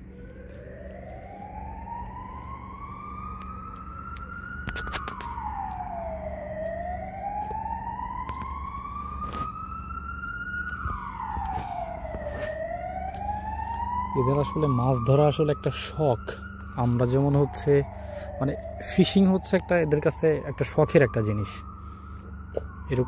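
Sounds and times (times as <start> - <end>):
emergency vehicle siren wailing: 0.0 - 23.0
low steady rumble: 0.0 - 23.0.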